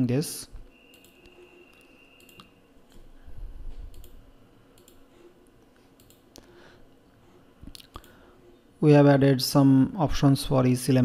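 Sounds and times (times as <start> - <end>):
computer mouse clicks: 0.9 - 3.1, 3.7 - 5.1, 5.9 - 6.5, 7.7 - 8.2.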